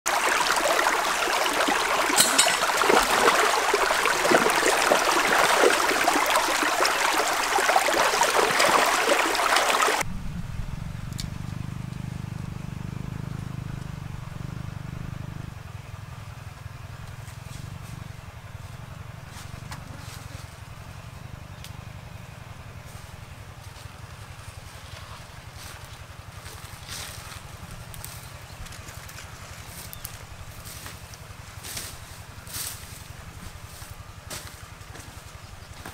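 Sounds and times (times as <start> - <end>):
stream running over rocks: 0.1 - 10.1
low steady rumble: 10.0 - 35.7.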